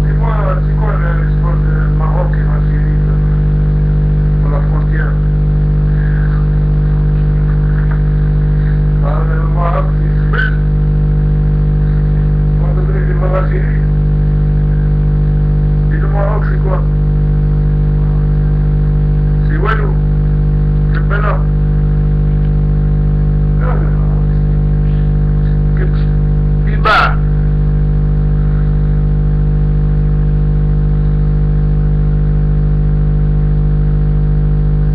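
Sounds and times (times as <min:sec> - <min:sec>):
person speaking: 0:00.0 - 0:03.4, 0:04.4 - 0:05.3, 0:05.9 - 0:10.7, 0:21.0 - 0:21.5, 0:23.6 - 0:27.4
loud electrical hum: 0:00.0 - 0:34.9.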